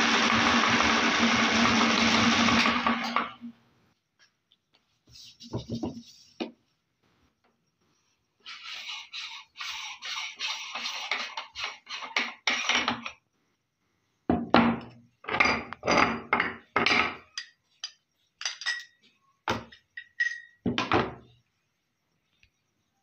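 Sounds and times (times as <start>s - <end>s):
meat grinder scraping strokes: 8.4s - 13.0s
metal clanks and knocks: 14.3s - 21.2s.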